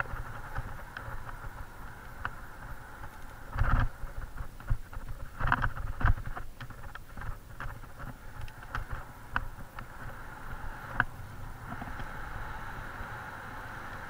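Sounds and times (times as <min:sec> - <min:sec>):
riding noise: 0:00.0 - 0:14.0
wind on microphone: 0:00.0 - 0:14.0
bike knocks and rattles: 0:03.0 - 0:10.2.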